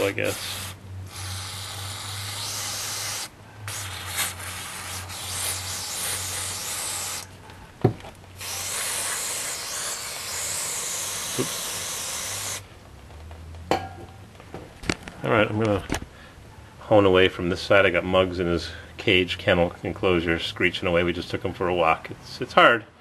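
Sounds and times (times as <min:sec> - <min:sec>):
aerosol spray hissing: 0:00.0 - 0:07.3, 0:08.4 - 0:12.6.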